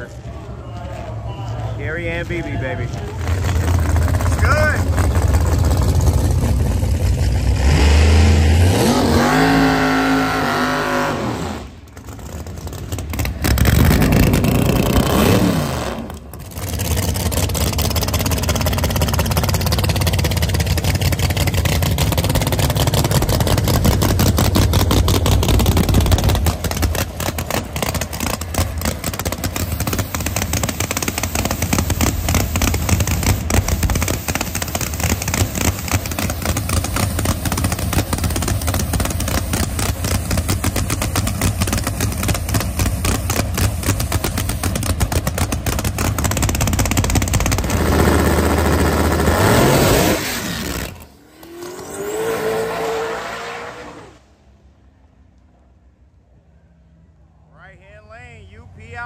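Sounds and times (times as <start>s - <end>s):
race engine idling: 0.0s - 8.7s, 9.9s - 49.5s
race car engine accelerating: 1.9s - 54.4s.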